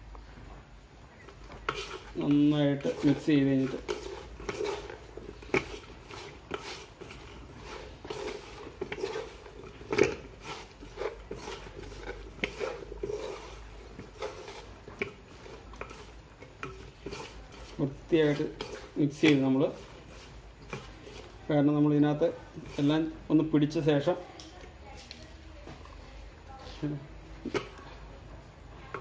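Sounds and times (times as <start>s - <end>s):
wet squelching of mixing: 1.0s - 29.0s.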